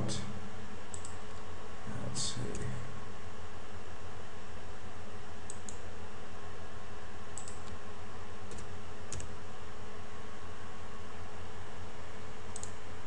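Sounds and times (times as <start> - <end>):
steady background hum: 0.0 - 13.0
keyboard and mouse clicks: 0.9 - 1.2, 7.4 - 7.8, 8.5 - 9.3, 12.5 - 12.8.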